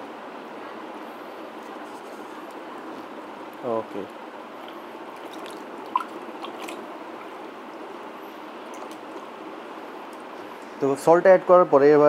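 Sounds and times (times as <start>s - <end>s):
faint water drips: 3.5s - 9.4s
water swishing in a plastic bucket: 4.6s - 9.4s.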